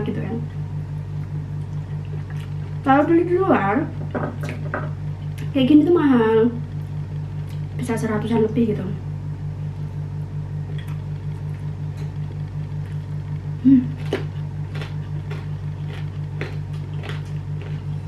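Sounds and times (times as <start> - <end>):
pulsing low hum: 0.0 - 18.0
chewing and mouth clicks: 1.5 - 2.8, 5.2 - 5.5, 7.1 - 7.8, 10.7 - 18.0.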